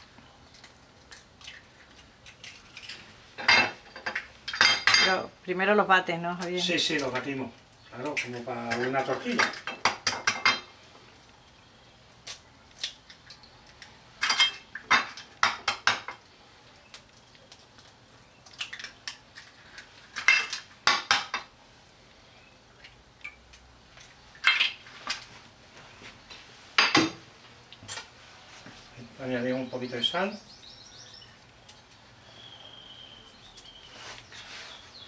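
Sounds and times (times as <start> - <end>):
eggs cracking on ceramic plate: 0.5 - 5.1, 16.9 - 21.5.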